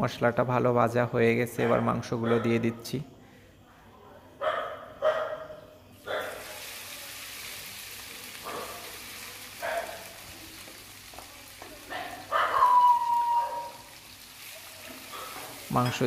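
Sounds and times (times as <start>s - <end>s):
chicken frying in oil: 6.0s - 16.0s.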